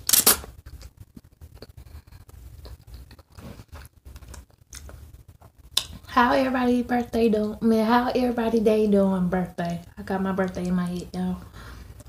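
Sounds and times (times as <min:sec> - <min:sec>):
person chewing spaghetti: 0:00.6 - 0:06.1.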